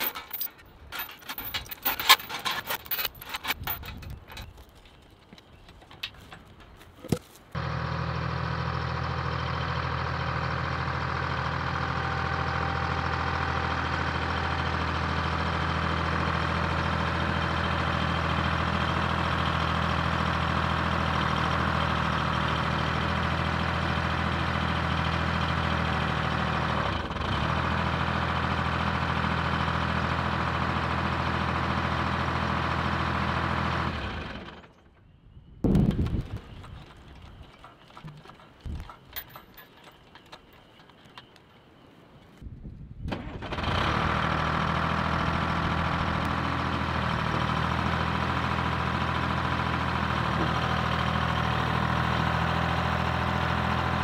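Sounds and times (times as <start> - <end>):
backhoe engine idling: 7.6 - 34.7, 36.4 - 41.3, 43.6 - 54.0.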